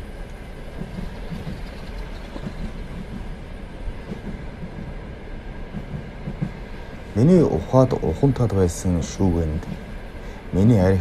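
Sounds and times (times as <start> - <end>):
narration: 10.5 - 11.0.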